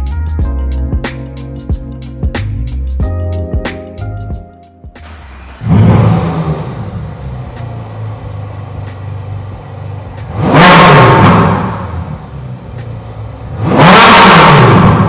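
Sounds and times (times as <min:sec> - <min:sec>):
car engine idling and revving: 0:05.0 - 0:15.0.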